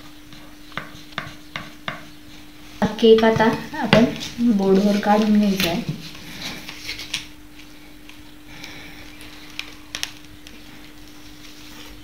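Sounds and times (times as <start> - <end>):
faint steady hum: 0.0 - 12.0.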